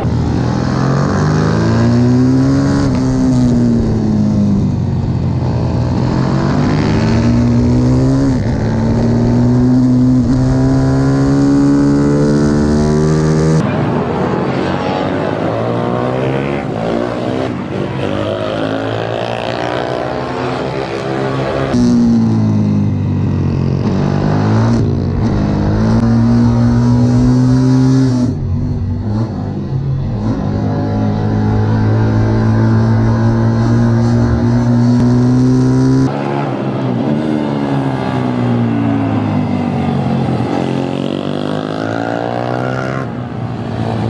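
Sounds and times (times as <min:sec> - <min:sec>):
several pit bikes passing: 0:00.0 - 0:44.0
pit bike engine revving: 0:05.4 - 0:13.6, 0:15.8 - 0:36.1.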